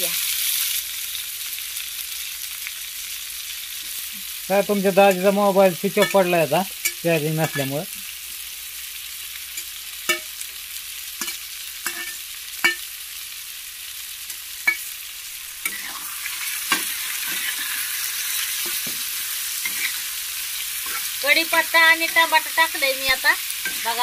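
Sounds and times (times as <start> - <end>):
onion and tomato sizzling in oil: 0.0 - 24.0
metal spatula clinking on pan: 6.0 - 7.8, 9.6 - 10.3, 11.2 - 12.8, 14.6 - 14.9.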